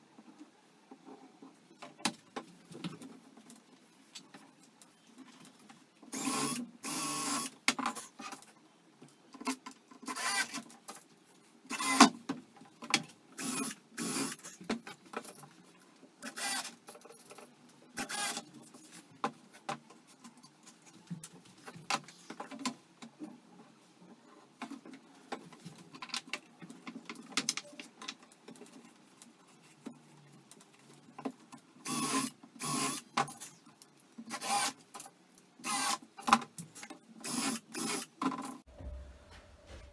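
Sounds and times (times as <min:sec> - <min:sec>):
cordless drill driving screws: 0:10.1 - 0:10.6, 0:16.2 - 0:16.7, 0:31.9 - 0:33.0, 0:34.3 - 0:34.8, 0:35.6 - 0:36.0.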